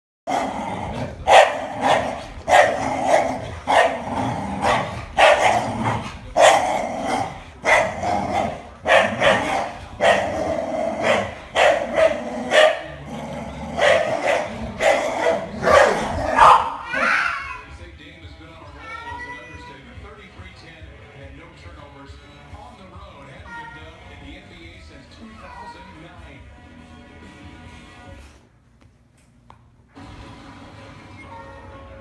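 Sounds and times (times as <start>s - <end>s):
dogs growling: 0.3s - 17.3s
dogs barking: 0.3s - 17.4s.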